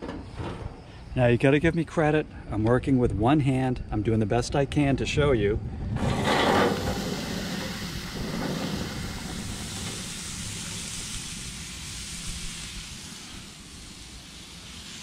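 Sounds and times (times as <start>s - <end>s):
low rumble of gas grill: 0.0s - 15.0s
vegetables sizzling on a pan: 6.6s - 15.0s.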